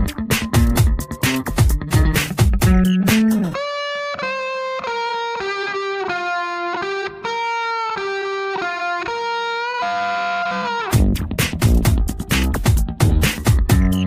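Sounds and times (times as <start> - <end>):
beat with heavy low thumps: 0.0 - 3.6, 11.0 - 14.0.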